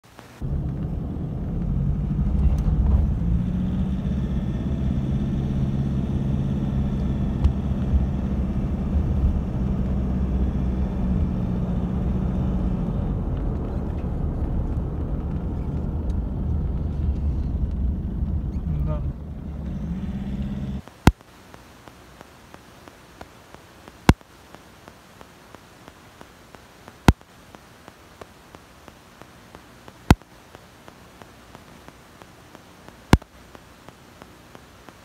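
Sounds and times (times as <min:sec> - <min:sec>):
road rumble: 0:00.0 - 0:35.0
car engine hum: 0:00.4 - 0:20.9.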